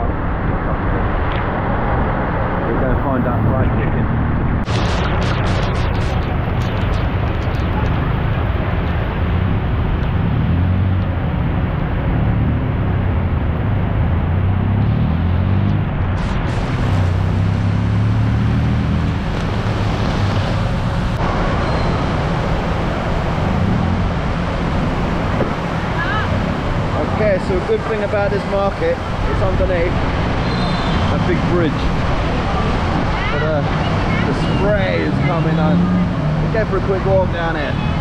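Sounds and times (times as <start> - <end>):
heavy rain: 4.6 - 10.5, 16.1 - 36.4
traffic on wet road: 6.6 - 38.0.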